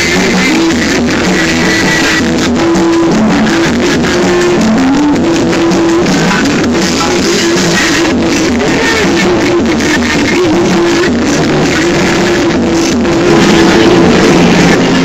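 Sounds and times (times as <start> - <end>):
busker playing music: 0.0 - 15.0.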